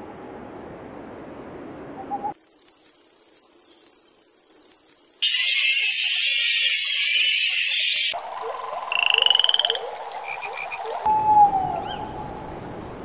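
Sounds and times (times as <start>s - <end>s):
insect chorus buzzing: 2.3s - 11.0s
frog-like pulsed trill: 2.3s - 11.1s.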